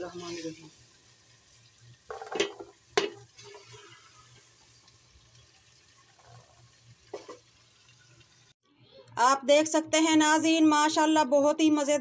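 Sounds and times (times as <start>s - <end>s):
ladle knocking and scraping pot: 2.1s - 4.1s, 7.1s - 7.5s.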